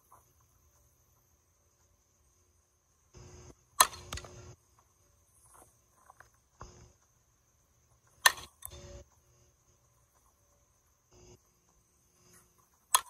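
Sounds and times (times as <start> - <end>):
crickets chirping: 0.0 - 13.0
bat cracking softball: 3.7 - 4.5, 8.2 - 8.7, 12.8 - 13.0.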